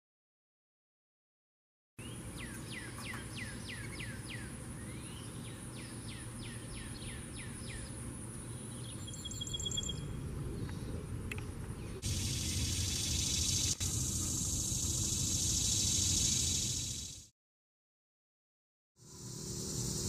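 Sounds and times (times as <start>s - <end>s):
bird fast trill: 8.6s - 10.2s, 12.0s - 17.3s
high insect drone: 12.0s - 17.3s, 19.0s - 20.0s.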